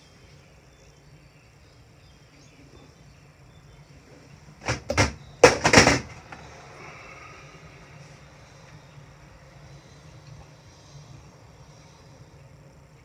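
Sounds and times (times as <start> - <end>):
handling noise: 4.6 - 6.5.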